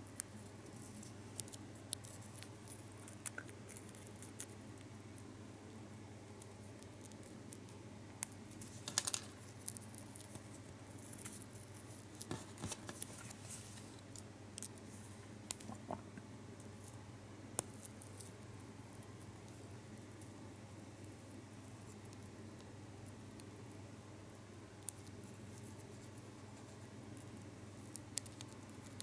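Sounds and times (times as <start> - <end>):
faint low hum: 0.0 - 29.0
foil wrapper crinkling: 8.6 - 9.4, 12.2 - 14.0.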